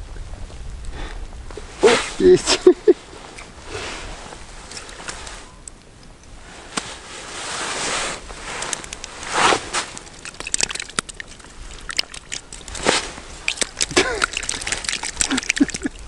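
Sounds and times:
snow and ice slush crunching: 1.6s - 5.6s, 6.4s - 16.0s
short loud scrapes: 1.8s - 2.2s, 9.3s - 9.9s.

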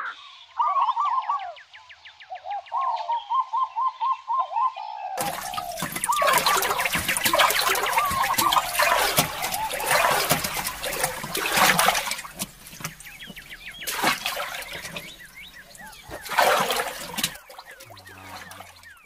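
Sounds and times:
birds calling: 0.0s - 19.0s
water splashing around paddled canoe: 5.2s - 19.0s.

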